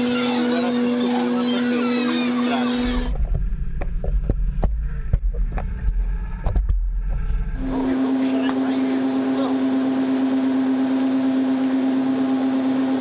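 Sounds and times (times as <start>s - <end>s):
gulls calling: 0.0s - 3.7s
boat engine hum: 0.0s - 13.0s
underwater rumble: 2.7s - 7.9s
underwater clicks and knocks: 3.1s - 7.4s.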